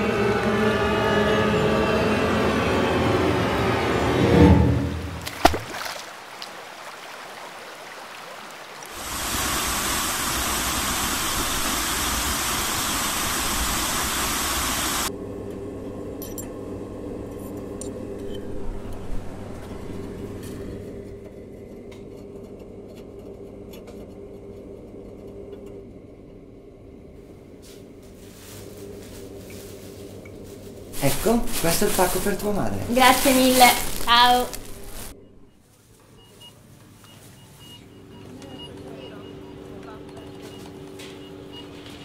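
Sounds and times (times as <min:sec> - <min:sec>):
laundry machines humming: 0:00.0 - 0:04.2, 0:05.1 - 0:42.0.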